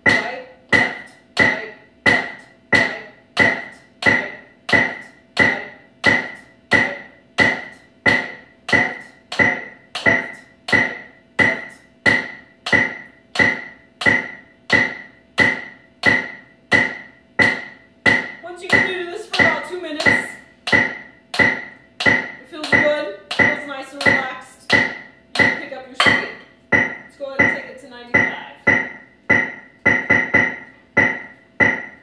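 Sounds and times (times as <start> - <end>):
metronome clicks: 0.1 - 16.3, 17.4 - 32.0.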